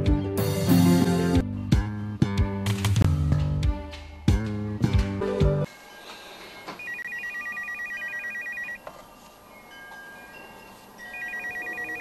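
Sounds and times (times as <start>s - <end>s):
phone ringing with warbling tones: 6.8s - 8.8s, 11.0s - 12.0s.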